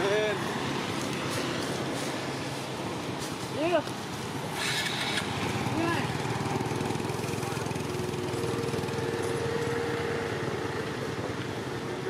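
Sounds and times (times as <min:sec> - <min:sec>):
small engine drone: 0:04.5 - 0:12.0.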